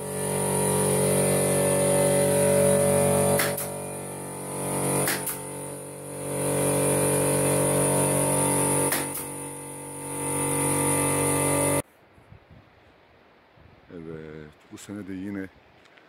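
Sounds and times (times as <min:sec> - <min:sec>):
air compressor humming: 0:00.0 - 0:11.8
sharp clicks: 0:05.0 - 0:05.4.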